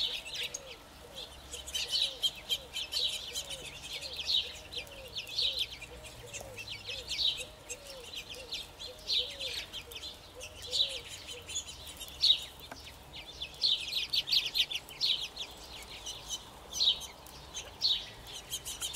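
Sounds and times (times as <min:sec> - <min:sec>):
quail chirping: 0:00.0 - 0:12.5.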